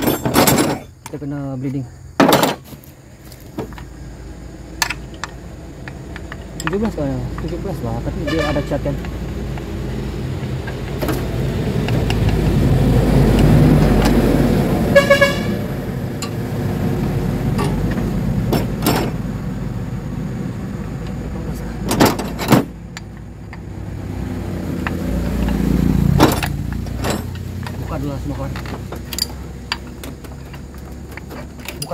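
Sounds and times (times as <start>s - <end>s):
sharp metallic knocks: 0.0s - 1.2s, 2.2s - 2.7s, 17.4s - 19.2s, 21.8s - 23.7s, 24.7s - 31.9s
diesel truck engine rumbling: 0.0s - 31.9s.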